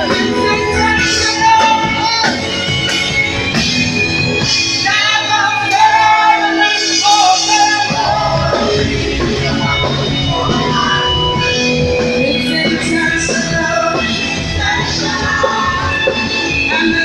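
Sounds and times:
bass: 0:00.0 - 0:17.0
choir singing with band: 0:00.0 - 0:17.0
woman's amplified lead voice: 0:12.1 - 0:13.6.

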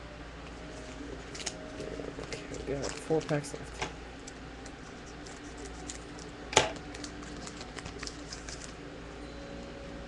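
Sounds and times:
foil pack crinkling: 0:00.8 - 0:08.8.

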